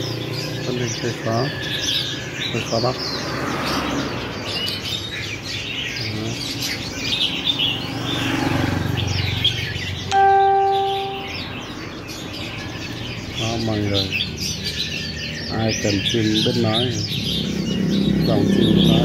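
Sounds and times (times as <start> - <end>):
birds chirping: 0.0 - 19.0
bell-like ringing tone: 10.1 - 11.4.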